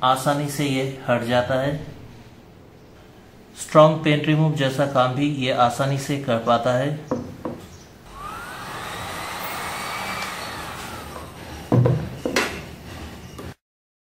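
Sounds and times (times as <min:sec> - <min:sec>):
heat gun blower whirring: 0:08.1 - 0:12.1.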